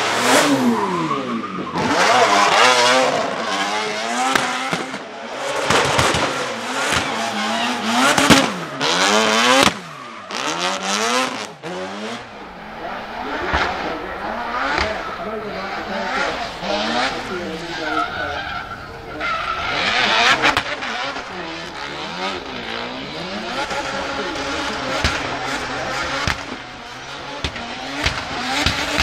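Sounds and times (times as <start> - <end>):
exhaust cracks: 0.0 - 29.0
rotary engine revving: 0.0 - 29.0
tyre squeal: 12.3 - 29.0.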